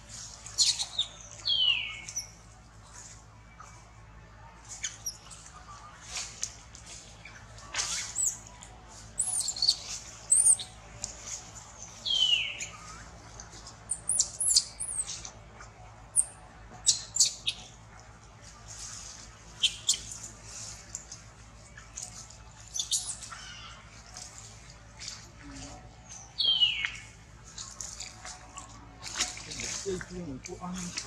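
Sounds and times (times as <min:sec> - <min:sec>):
baby monkey squealing and screaming: 0:00.6 - 0:01.0, 0:07.8 - 0:08.4, 0:09.2 - 0:10.7, 0:13.9 - 0:15.1, 0:22.7 - 0:23.8.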